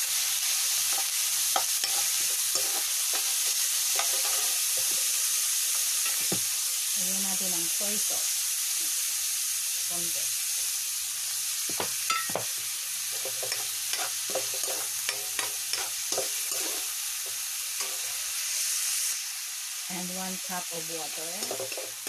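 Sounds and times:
meat and onion sizzling in wok: 0.0s - 22.0s
metal ladle scraping pan: 13.2s - 16.9s, 21.4s - 22.0s.

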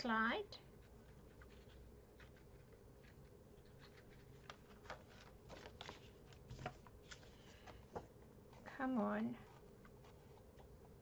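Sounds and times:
paper rustling: 0.8s - 8.1s.

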